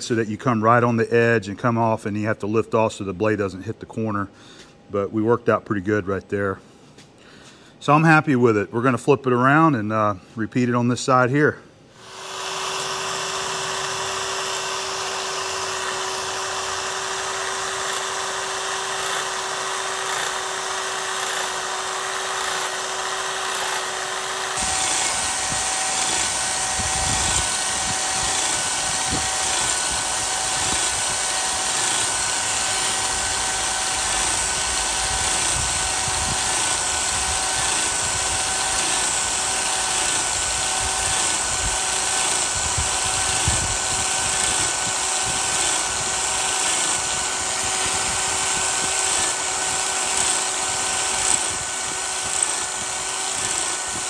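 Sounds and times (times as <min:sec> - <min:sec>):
electric power scraper on metal: 0:12.0 - 0:54.0.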